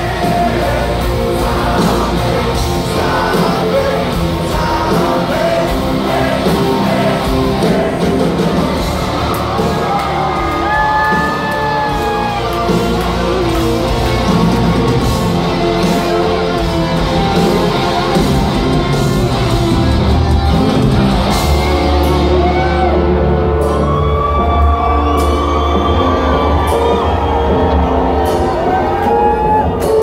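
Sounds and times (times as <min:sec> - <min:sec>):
person singing: 0:00.0 - 0:08.8
crowd yelling: 0:00.0 - 0:30.0
live rock band playing: 0:00.0 - 0:30.0.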